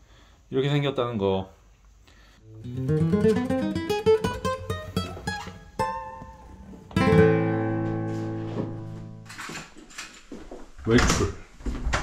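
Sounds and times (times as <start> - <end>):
plucked acoustic guitar: 2.5 - 9.3.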